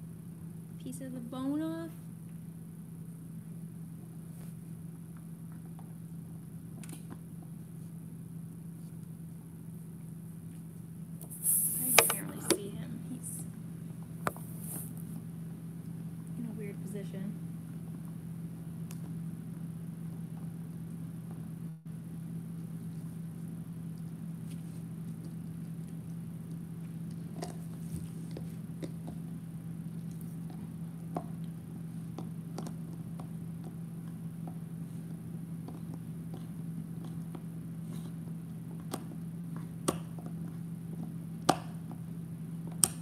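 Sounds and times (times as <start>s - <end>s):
steady low hum: 0.0s - 43.0s
dog gnawing bone: 22.3s - 43.0s.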